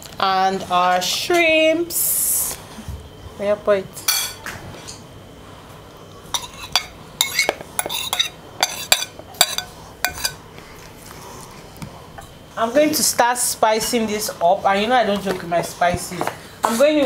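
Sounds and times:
metal spoon scraping ceramic bowl: 0:06.4 - 0:10.4.

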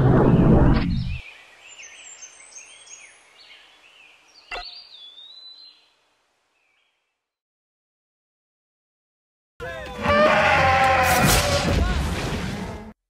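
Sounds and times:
small birds chirping: 0:00.3 - 0:07.3.

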